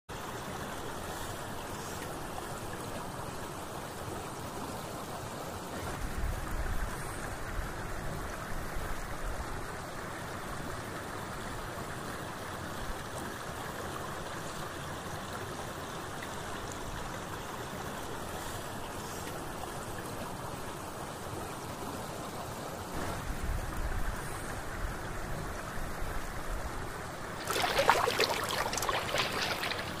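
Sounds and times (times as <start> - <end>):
river water rushing: 27.1 - 30.0
crackling splashy noise: 27.4 - 30.0.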